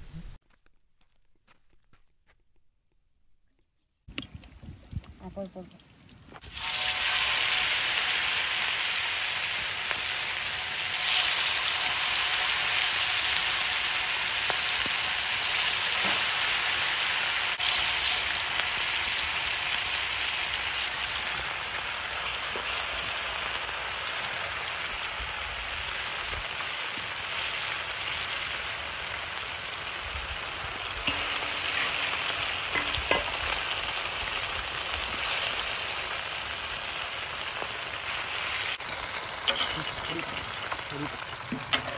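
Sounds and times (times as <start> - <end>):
fish sizzling in hot oil: 6.4 - 41.9.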